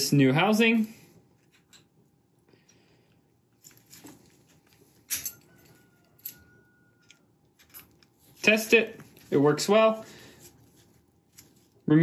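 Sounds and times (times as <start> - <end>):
lock handling: 5.0 - 8.1.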